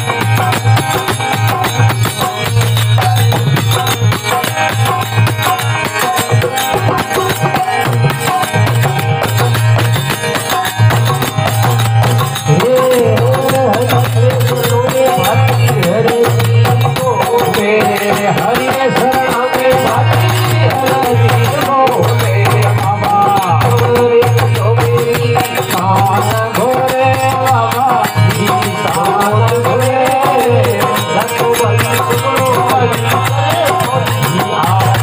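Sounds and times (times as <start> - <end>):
steady drum beat: 0.0 - 35.0
men singing: 9.6 - 35.0.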